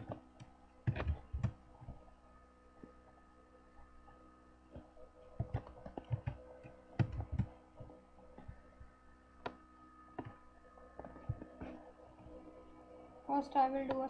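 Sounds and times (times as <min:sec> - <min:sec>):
faint steady hum: 0:00.0 - 0:14.0
keyboard keystrokes: 0:00.9 - 0:01.6, 0:07.0 - 0:07.5.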